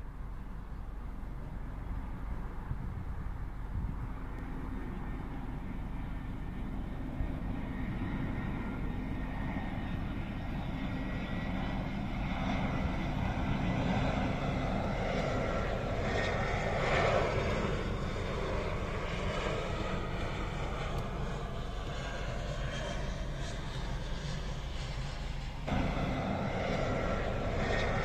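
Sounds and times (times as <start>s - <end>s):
airliner jet engines rumbling: 0.0s - 28.0s.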